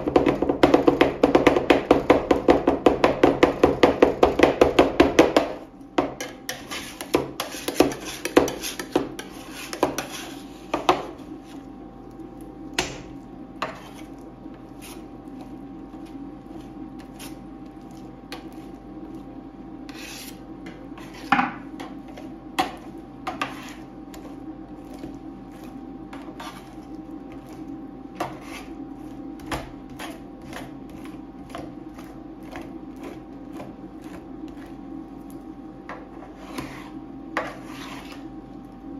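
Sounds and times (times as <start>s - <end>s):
steady hum: 0.0s - 38.9s
spatula scraping on metal plate: 6.2s - 11.6s, 13.6s - 15.1s, 19.9s - 24.3s, 26.1s - 26.8s, 28.2s - 33.2s, 36.1s - 38.3s.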